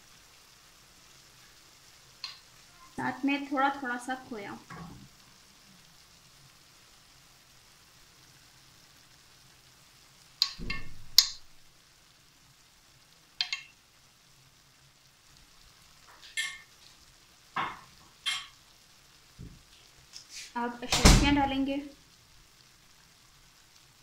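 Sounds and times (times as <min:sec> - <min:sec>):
faint sizzle from pan: 0:00.0 - 0:24.0
metal spoon clinking on glass: 0:16.3 - 0:16.7, 0:18.3 - 0:18.6.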